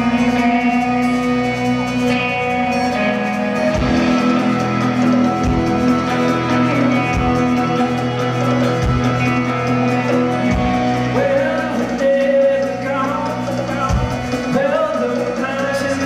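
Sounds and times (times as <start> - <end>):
guitar chords: 0.0 - 16.0
male lead vocal: 10.9 - 16.0.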